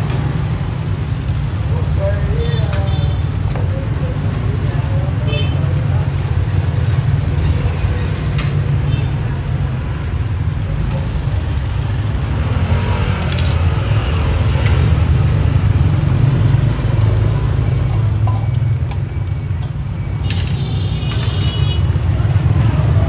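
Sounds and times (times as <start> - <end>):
motorbikes: 0.0 - 23.0
street traffic rumble: 0.0 - 23.0.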